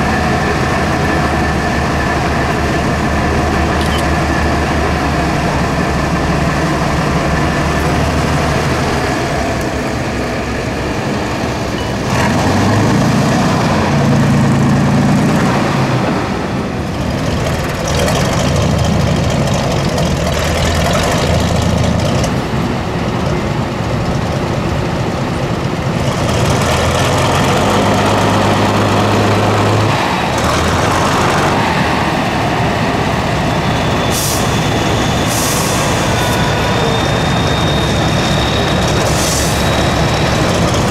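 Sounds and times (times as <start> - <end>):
diesel truck engine under load: 0.0 - 40.9.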